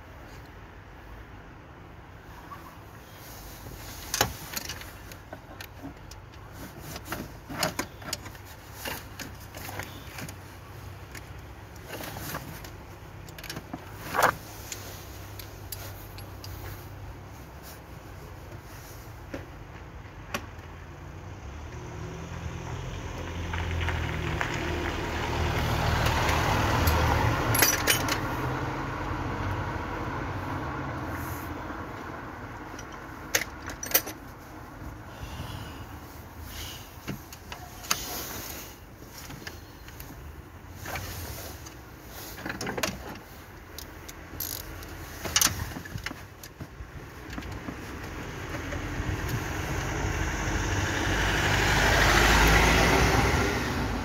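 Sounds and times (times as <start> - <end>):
passing vehicle: 20.6 - 42.4, 47.0 - 54.0.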